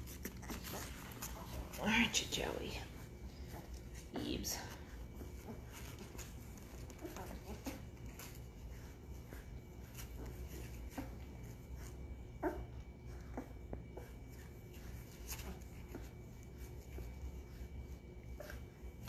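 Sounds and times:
puppies squeaking and whimpering: 0.0 - 1.6, 5.3 - 13.6
low steady hum: 0.0 - 19.0.

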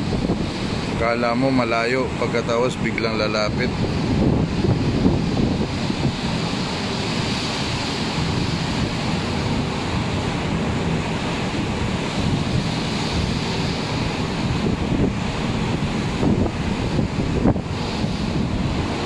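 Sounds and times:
rough sea breaking: 0.0 - 19.0
wind buffeting microphone: 0.0 - 19.0.

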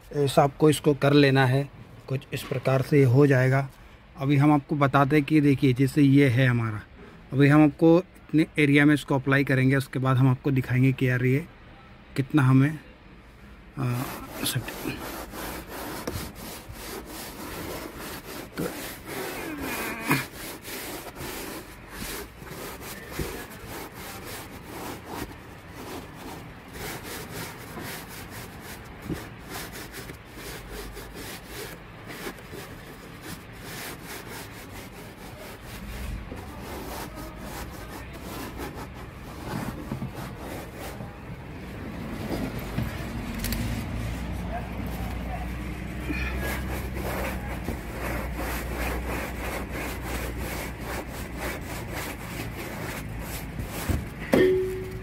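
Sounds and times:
sponge scrubbing: 13.8 - 55.0.

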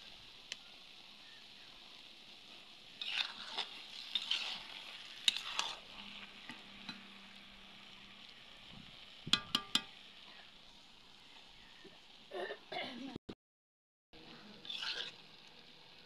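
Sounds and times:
greens sizzling in a wok: 0.0 - 13.2, 14.2 - 16.0
spatula scraping a wok: 1.9 - 10.6, 14.4 - 15.6.

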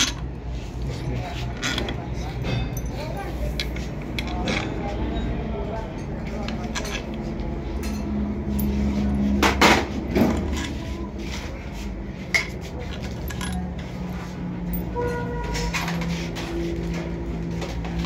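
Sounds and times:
metal tools clinking: 0.0 - 9.6, 12.3 - 16.0.

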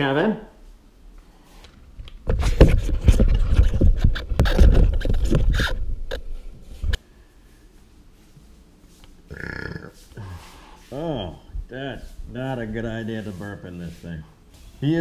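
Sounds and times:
rubber mask rubbing and scraping: 2.3 - 7.0.

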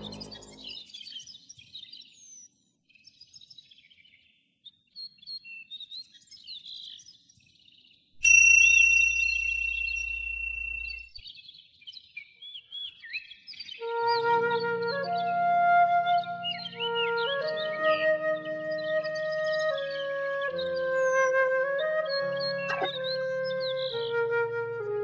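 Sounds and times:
bell ringing: 8.2 - 11.2.

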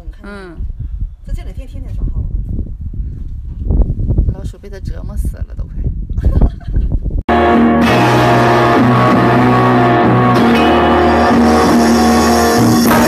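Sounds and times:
guitar music: 7.3 - 13.0
shifting bass line: 7.3 - 13.0.

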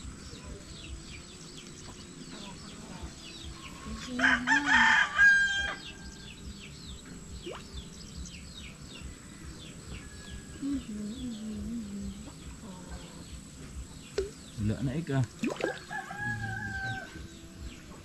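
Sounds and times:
small birds chirping: 0.0 - 18.0
rooster crowing: 4.1 - 6.1, 15.6 - 17.4.

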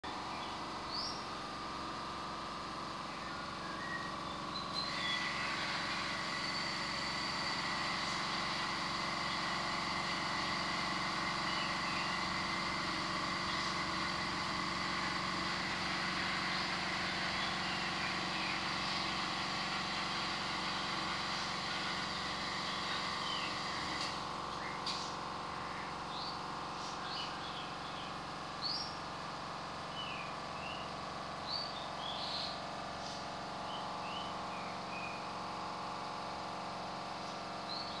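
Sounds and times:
steady background hum: 0.0 - 38.0
birds chirping: 0.2 - 1.4, 3.1 - 5.7, 11.4 - 12.2, 16.5 - 19.2, 24.5 - 29.0.

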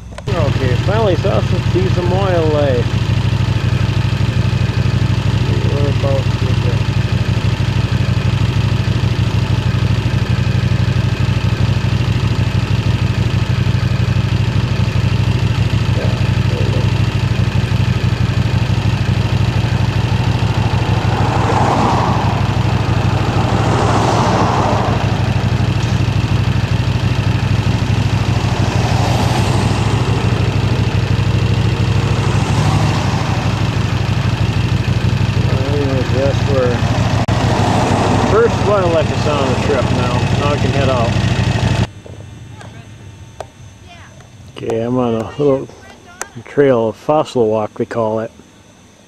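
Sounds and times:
motorcycle engine running: 0.0 - 49.0.

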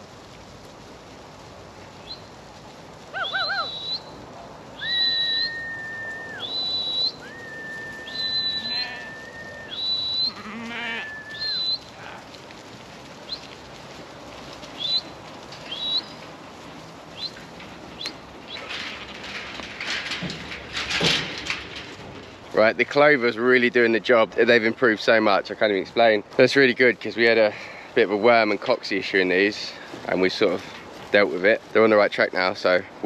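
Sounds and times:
herding whistles: 3.2 - 4.1, 4.8 - 11.9, 15.7 - 16.2
sheep bleating: 8.5 - 9.4, 10.2 - 11.3.

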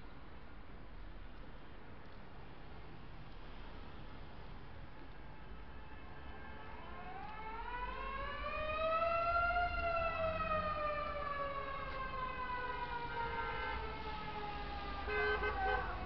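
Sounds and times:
siren wailing: 6.4 - 16.0.

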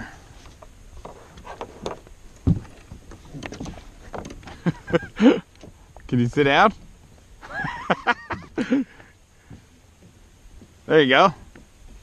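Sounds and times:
hollow knocks on plastic kayak: 2.4 - 2.8.

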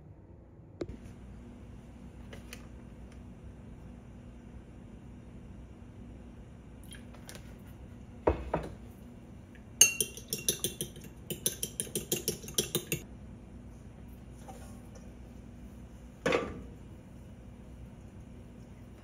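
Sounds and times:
utensil clinking in porcelain bowl: 9.8 - 13.0.

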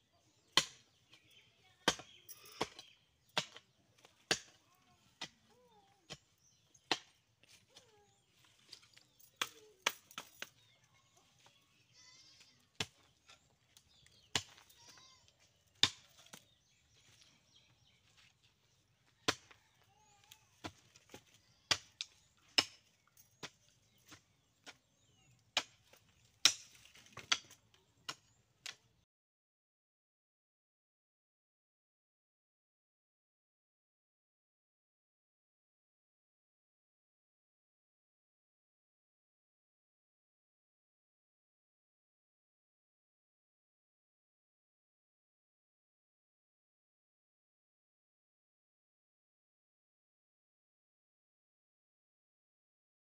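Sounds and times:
hoe chopping into soil: 14.3 - 14.7.

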